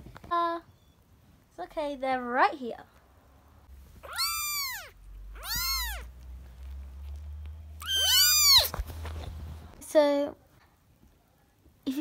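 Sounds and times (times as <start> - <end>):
kitten meowing: 4.0 - 6.2, 7.8 - 8.8.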